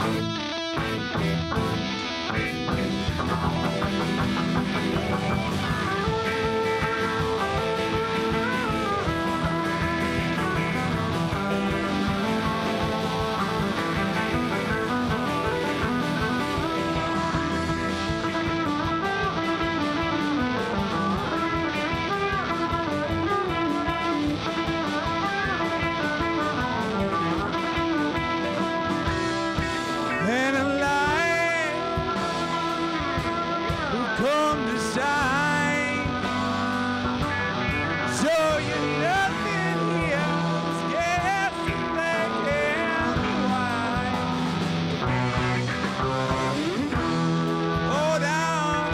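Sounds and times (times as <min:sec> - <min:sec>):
bending lead guitar lines: 0:00.0 - 0:48.9
live rock band playing: 0:00.0 - 0:48.9.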